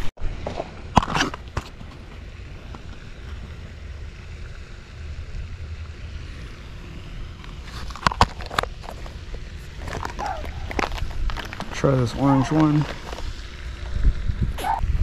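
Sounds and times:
wind buffeting microphone: 9.1s - 15.0s.

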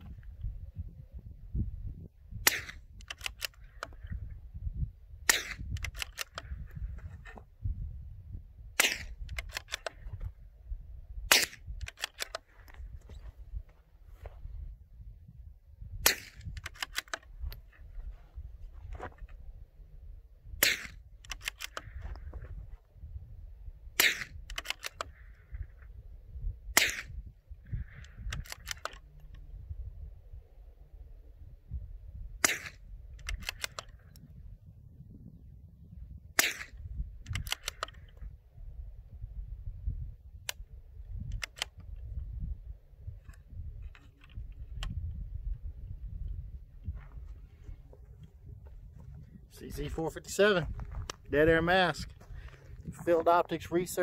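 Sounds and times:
wind rumble on microphone: 0.0s - 54.0s
rifle bolt metallic clicks: 2.4s - 4.1s, 5.3s - 6.5s, 8.8s - 10.3s, 11.3s - 12.9s, 16.0s - 17.7s, 20.6s - 22.3s, 24.0s - 25.3s, 27.9s - 29.5s, 32.4s - 34.3s, 36.4s - 38.2s, 40.4s - 42.2s, 43.2s - 45.2s
suppressed rifle shots: 2.4s - 4.1s, 5.2s - 6.6s, 8.8s - 10.2s, 11.2s - 12.5s, 16.0s - 17.3s, 20.6s - 22.3s, 23.9s - 25.6s, 26.7s - 29.4s, 32.4s - 34.0s, 36.3s - 38.1s.

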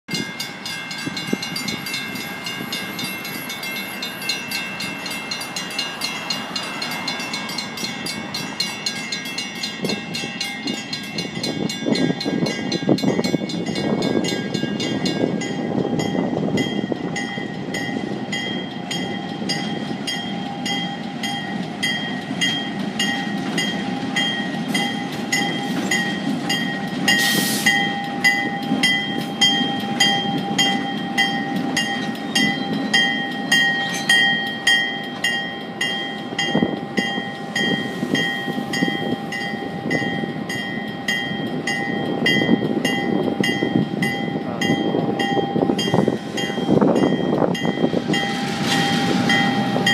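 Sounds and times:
crossing bell ringing: 0.1s - 49.9s
diesel locomotive engines rumbling: 0.1s - 49.9s.

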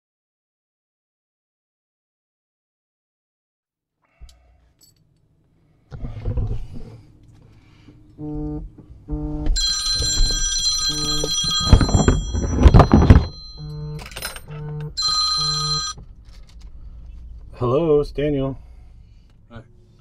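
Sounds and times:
high phone ringing tone: 9.5s - 16.0s
low pitched phone beeps: 9.5s - 16.0s
loud rustling knocks: 9.8s - 13.4s.

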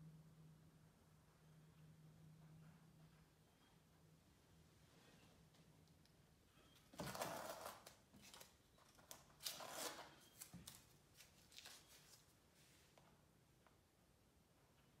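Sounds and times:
tape peeling papery rustle: 7.0s - 12.4s.

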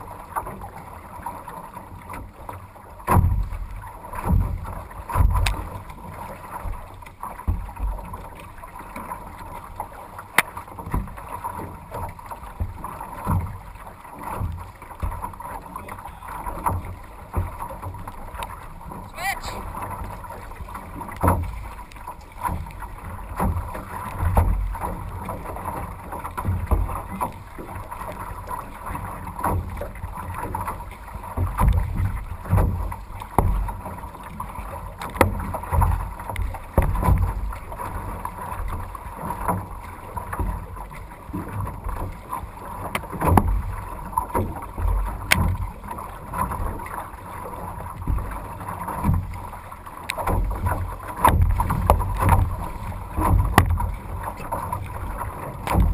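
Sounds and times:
water splashing against canoe: 0.0s - 55.9s.

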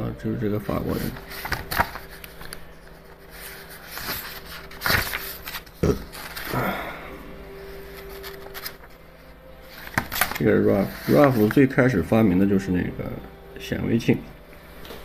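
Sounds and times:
faint steady hum: 0.0s - 15.0s
book pages turning: 0.7s - 6.8s, 7.6s - 12.2s.

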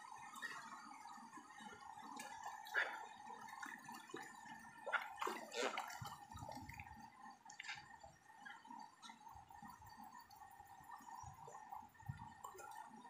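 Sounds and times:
creek water splashing: 2.1s - 8.0s.

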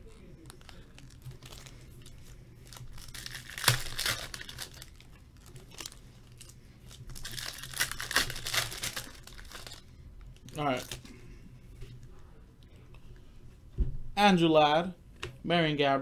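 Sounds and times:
foil wrappers tearing and crinkling: 0.0s - 11.2s.

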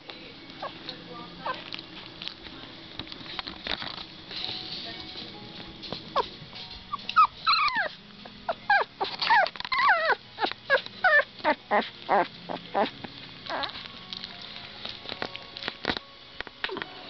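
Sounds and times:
puppies whimpering and yelping: 6.2s - 14.0s.

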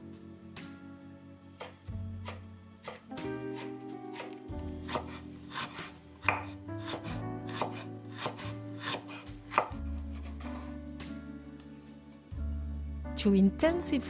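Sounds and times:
cleaver chopping on wooden board: 1.6s - 10.6s.

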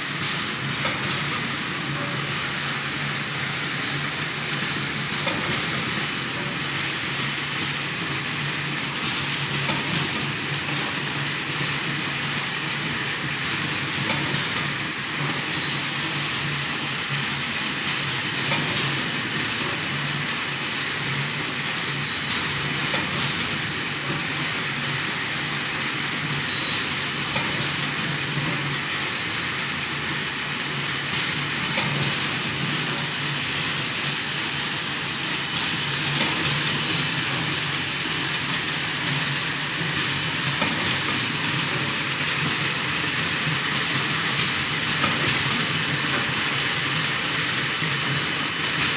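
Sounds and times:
machinery mechanical hiss: 0.0s - 48.9s.

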